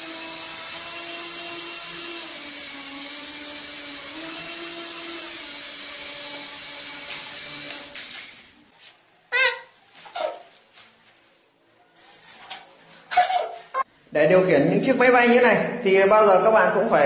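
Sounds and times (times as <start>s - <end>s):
toy helicopter motor whine: 0.0s - 8.2s.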